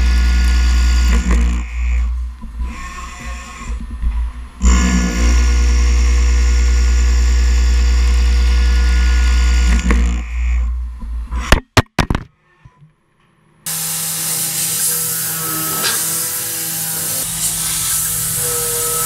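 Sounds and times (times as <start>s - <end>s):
hissing coolant spray: 13.7s - 19.0s
milling machine cutting metal: 13.7s - 19.0s.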